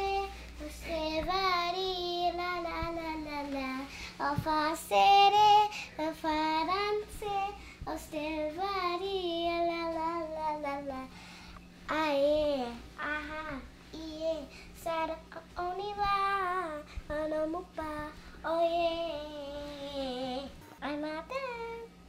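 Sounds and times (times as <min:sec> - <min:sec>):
girl singing: 0:00.0 - 0:11.2, 0:11.8 - 0:22.0
singer breathing: 0:03.9 - 0:04.2, 0:05.7 - 0:06.0, 0:07.6 - 0:07.9, 0:11.1 - 0:11.7, 0:14.4 - 0:14.8.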